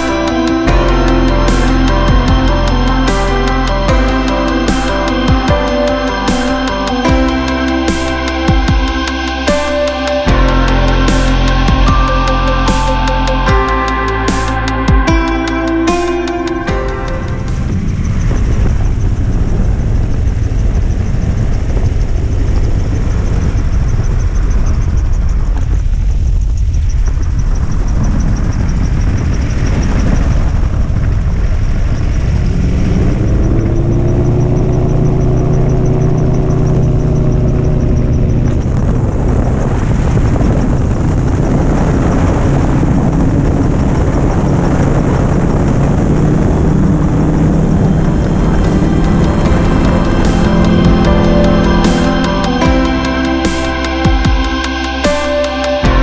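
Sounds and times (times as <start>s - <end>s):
loud wind rushing: 0.0s - 56.0s
gyroplane engine and propeller: 17.3s - 51.8s.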